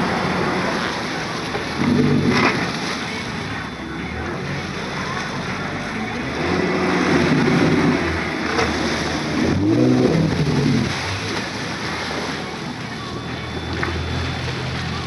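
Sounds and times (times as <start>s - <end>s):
boat engine humming: 0.0s - 15.0s
water rushing in wake: 0.0s - 15.0s.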